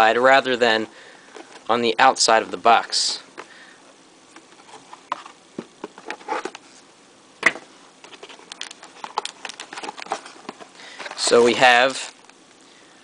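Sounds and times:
cardboard and plastic bag crinkling: 0:08.0 - 0:12.2.

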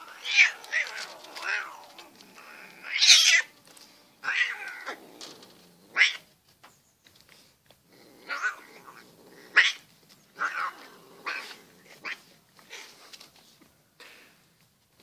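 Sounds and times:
cat yowling: 0:00.0 - 0:03.5, 0:04.2 - 0:05.0.

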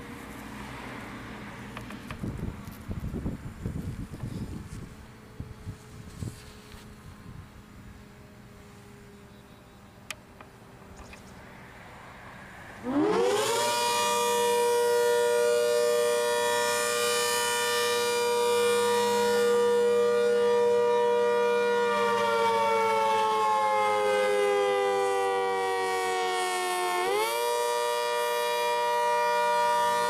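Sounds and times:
warning siren winding: 0:12.9 - 0:19.9.

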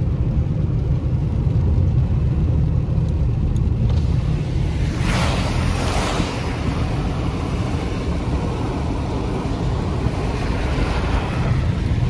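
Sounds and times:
low road rumble inside car: 0:00.0 - 0:12.0
tyres hissing on wet pavement: 0:04.0 - 0:12.0.

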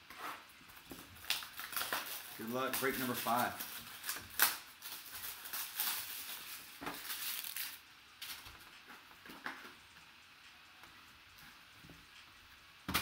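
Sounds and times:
plastic and cardboard crinkling: 0:00.1 - 0:09.8.

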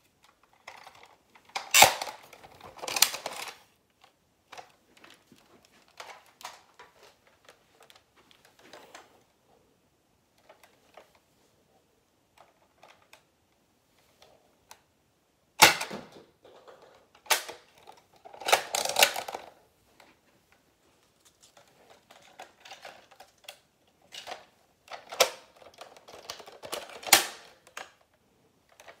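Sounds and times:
toy blaster clicks and snaps: 0:01.5 - 0:02.2.

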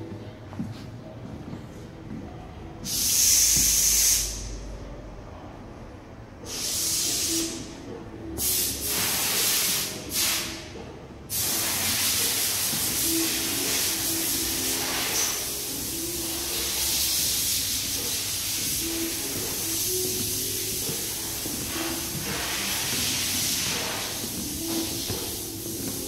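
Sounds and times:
loud bursts of hissing: 0:02.8 - 0:04.6, 0:06.5 - 0:07.6, 0:08.4 - 0:10.6, 0:11.3 - 0:26.0
steady hiss: 0:08.4 - 0:10.7, 0:11.3 - 0:26.0.

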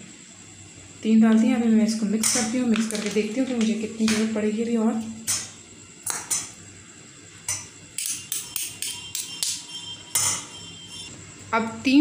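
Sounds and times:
metal spoon clinking on metal bowl: 0:07.5 - 0:10.5.

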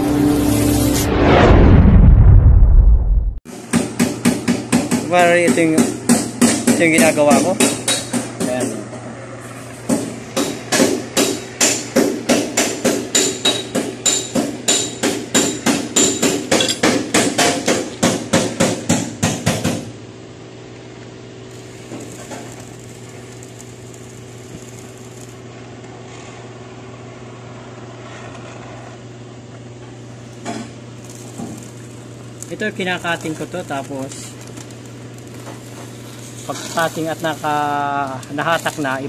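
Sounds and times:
low hum: 0:00.0 - 0:03.4
steady hiss: 0:21.5 - 0:25.4, 0:30.4 - 0:39.0.

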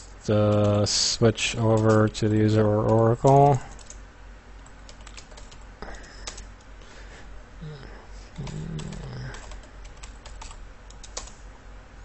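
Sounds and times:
keyboard keys clicking: 0:01.7 - 0:02.2, 0:02.8 - 0:04.0, 0:04.9 - 0:05.6, 0:08.4 - 0:11.3.

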